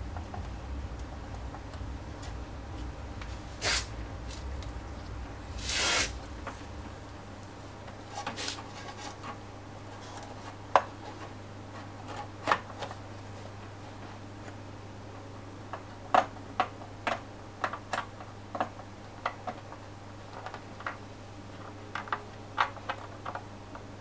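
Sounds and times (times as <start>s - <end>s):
rubbing and scraping: 3.2s - 7.0s, 7.9s - 13.0s.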